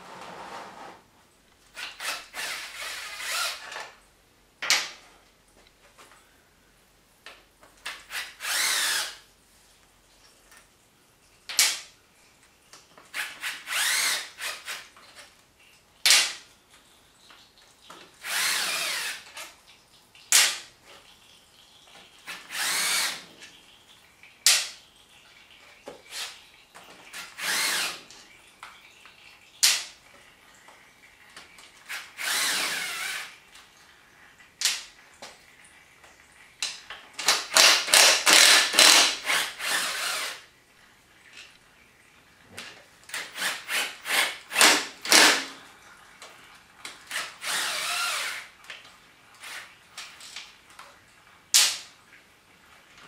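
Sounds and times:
power drill spinning: 1.8 - 3.9, 8.0 - 9.2, 13.1 - 14.9, 18.2 - 19.4, 22.3 - 23.5, 27.2 - 28.1, 31.9 - 33.4, 37.2 - 40.5, 43.1 - 45.6, 47.0 - 48.6.

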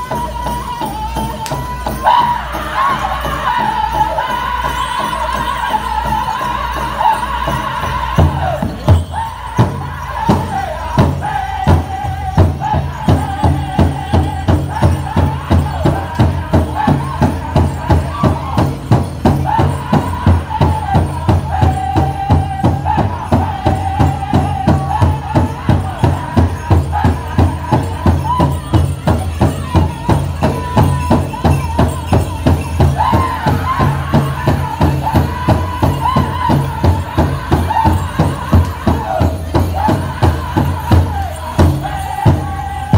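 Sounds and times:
high gliding voices singing: 0.0 - 42.9
jingling bells: 0.0 - 42.9.

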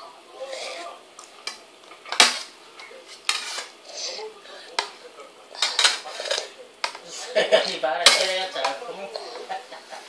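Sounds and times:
spoons clinking on metal bowls: 5.6 - 7.0, 8.0 - 8.8.

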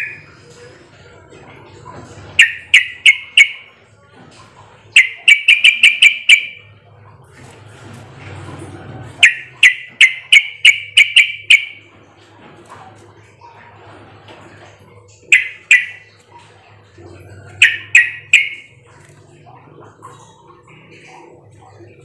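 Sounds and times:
bird chattering call notes: 2.4 - 3.7, 5.0 - 6.6, 9.2 - 11.8, 15.2 - 16.1, 17.6 - 18.7.

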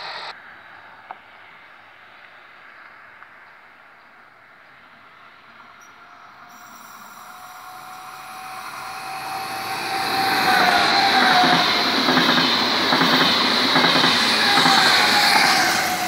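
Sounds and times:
train whine: 0.0 - 1.5, 4.8 - 16.0
train wheel and rail noise: 0.0 - 16.0.

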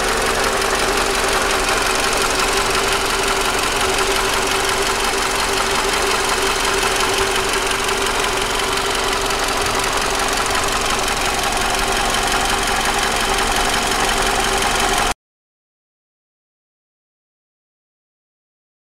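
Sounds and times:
car engine idling: 0.0 - 15.1.

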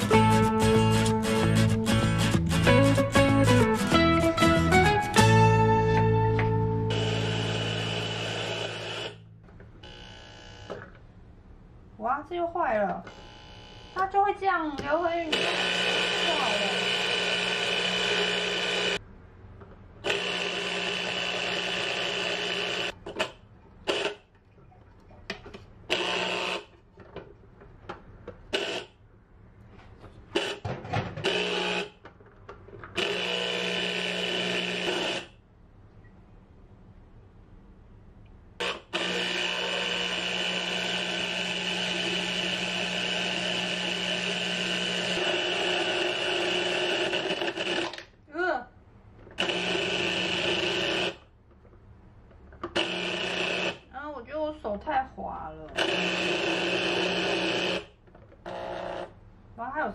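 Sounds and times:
citrus juicer motor whirring: 6.3 - 9.2, 13.1 - 14.0, 15.3 - 19.0, 20.1 - 23.0, 33.0 - 35.3, 38.6 - 48.1, 49.4 - 51.2, 52.7 - 53.8, 55.8 - 59.1.

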